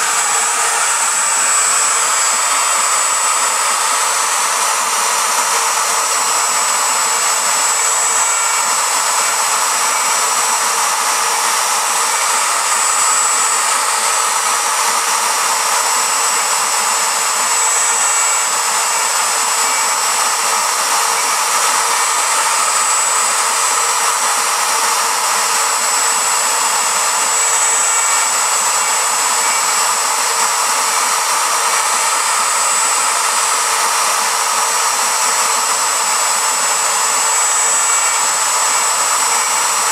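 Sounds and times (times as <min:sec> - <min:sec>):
router bit cutting wood: 0:00.0 - 0:39.9.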